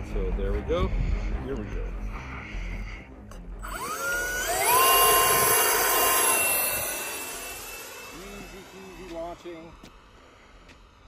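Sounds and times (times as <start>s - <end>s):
electric ducted fans whining: 3.5s - 11.0s.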